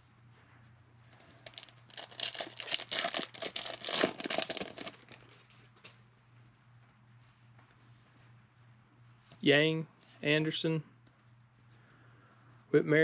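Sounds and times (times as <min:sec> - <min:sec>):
foil wrapper tearing and crinkling: 0:01.4 - 0:05.4.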